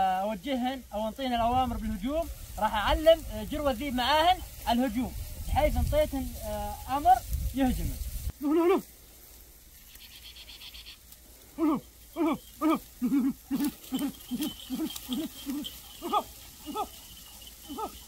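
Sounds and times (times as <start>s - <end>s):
dogs barking: 13.5s - 18.0s.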